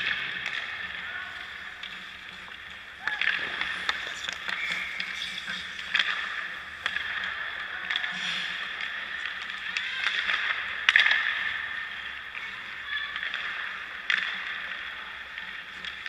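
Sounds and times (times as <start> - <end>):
skates scraping on ice: 0.0 - 16.0.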